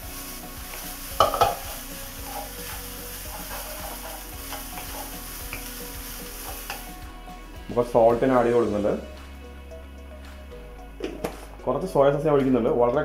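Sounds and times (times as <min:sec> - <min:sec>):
spatula scraping wok: 0:00.0 - 0:09.1
food sizzling: 0:00.0 - 0:11.6
spatula clattering on pan: 0:01.2 - 0:01.7.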